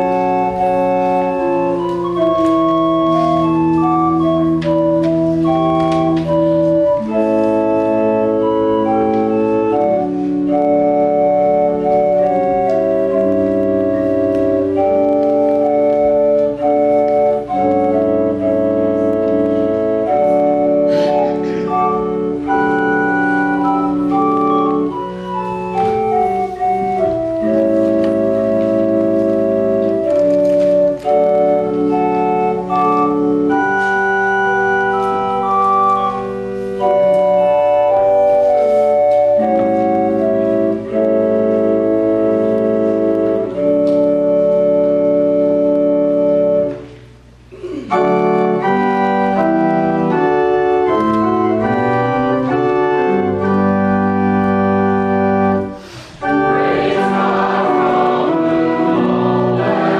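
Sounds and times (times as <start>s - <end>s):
organ playing slow chords: 0.0s - 59.9s.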